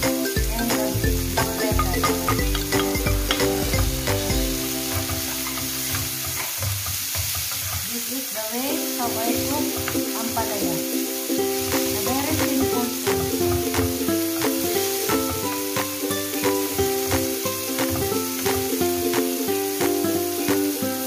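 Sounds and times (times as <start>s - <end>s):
soft background music: 0.0s - 6.3s, 8.8s - 21.0s
vegetables sizzling in a frying pan: 0.0s - 21.0s
wooden spatula scraping a pan: 3.3s - 8.0s.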